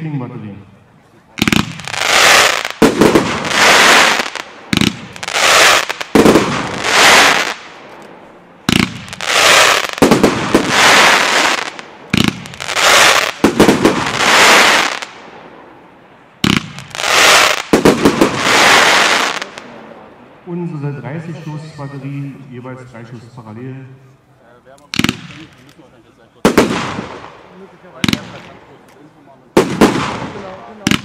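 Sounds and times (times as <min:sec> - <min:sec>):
firework battery popping and crackling: 0:01.4 - 0:15.3, 0:16.4 - 0:19.7, 0:24.8 - 0:31.0.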